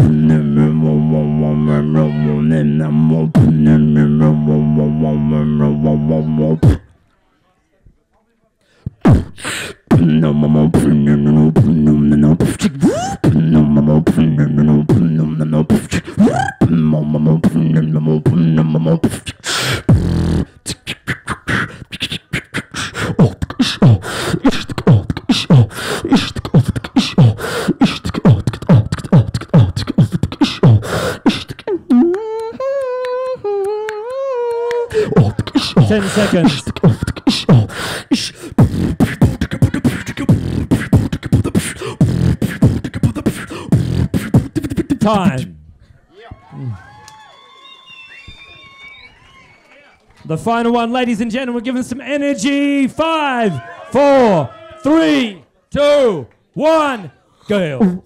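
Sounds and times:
man beatboxing: 0.0s - 6.9s, 8.8s - 45.6s, 57.4s - 58.0s.

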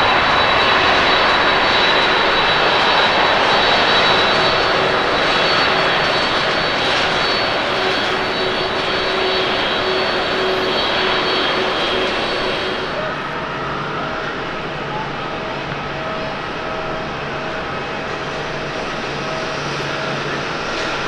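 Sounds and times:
jet engines at takeoff thrust: 0.0s - 21.0s.

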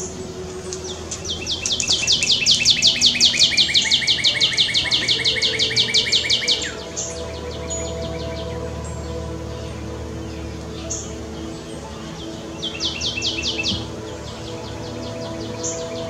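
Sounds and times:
cardinal singing whistles: 0.0s - 16.0s.

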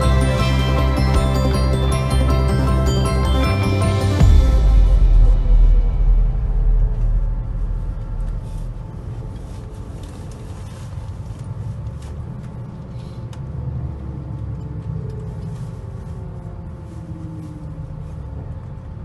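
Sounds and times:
background music: 0.0s - 10.1s
bus engine rumble: 0.0s - 19.0s
road noise: 0.0s - 19.0s.

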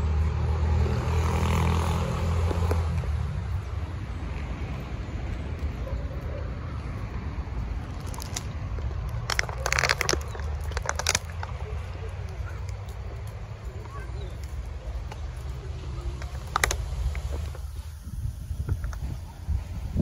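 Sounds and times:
motor vehicle engine rumble: 0.0s - 20.0s
outdoor background noise: 0.0s - 20.0s
rustles: 7.6s - 20.0s.

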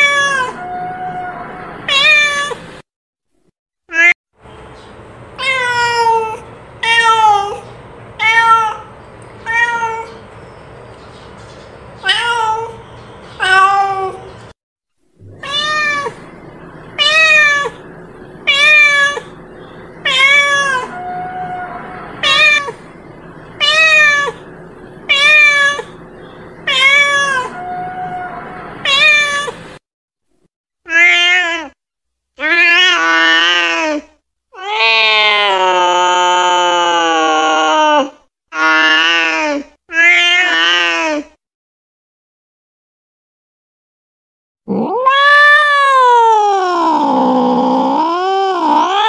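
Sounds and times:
cat meowing: 0.0s - 2.6s, 5.4s - 10.2s, 12.0s - 12.8s, 13.4s - 14.3s, 15.2s - 19.4s, 20.0s - 22.9s, 23.6s - 26.0s, 26.6s - 29.6s, 30.9s - 31.8s, 37.8s - 41.2s, 44.7s - 49.0s.

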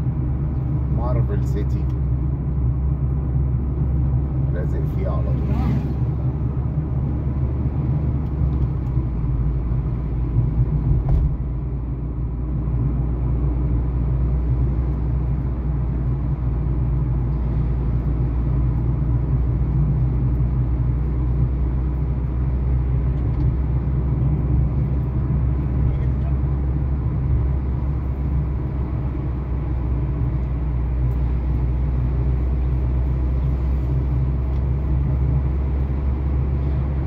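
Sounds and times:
car cabin road rumble: 0.0s - 37.0s.

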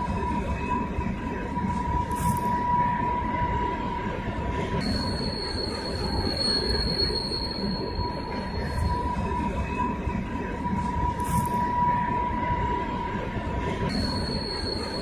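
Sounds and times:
high-pitched wheel squeal: 4.8s - 9.0s.

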